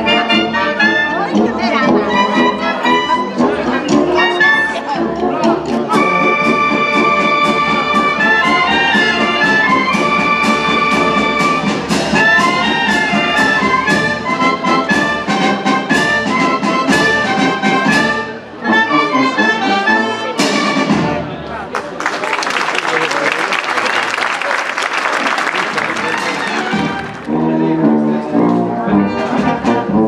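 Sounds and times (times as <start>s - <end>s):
wind band playing: 0.0s - 21.4s, 24.8s - 30.0s
drum hits: 7.4s - 18.1s.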